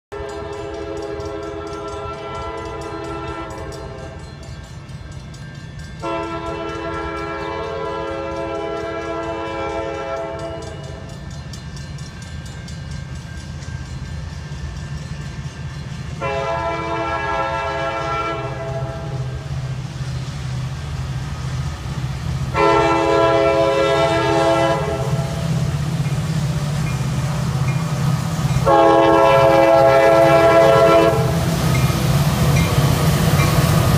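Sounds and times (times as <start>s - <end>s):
locomotive air horn blasts: 0.2s - 4.2s, 6.0s - 10.6s, 16.2s - 19.2s, 22.5s - 25.4s, 28.6s - 31.4s.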